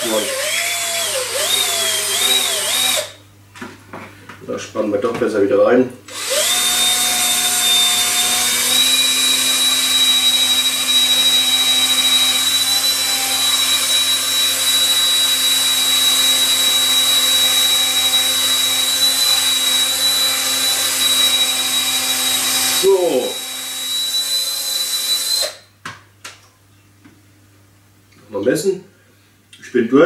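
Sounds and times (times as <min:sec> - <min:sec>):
cordless drill boring into wood: 0:00.0 - 0:03.2, 0:06.1 - 0:25.6.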